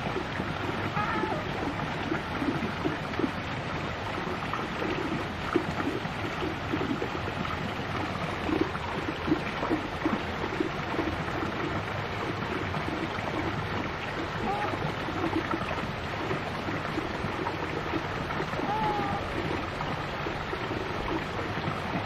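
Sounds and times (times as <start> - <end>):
low water gurgles: 0.0 - 22.0
running water: 0.0 - 22.0.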